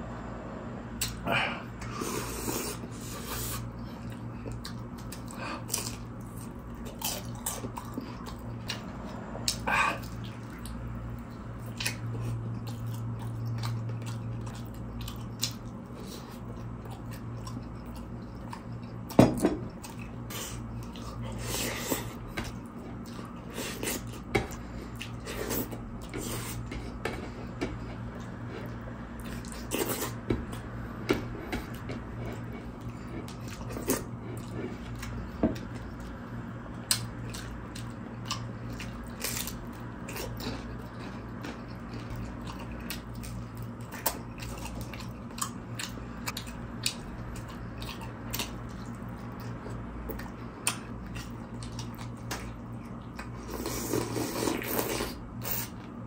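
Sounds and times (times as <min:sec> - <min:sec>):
steady low hum: 0:00.0 - 0:56.0
wet chewing and lip smacks: 0:03.6 - 0:21.2, 0:31.6 - 0:53.5.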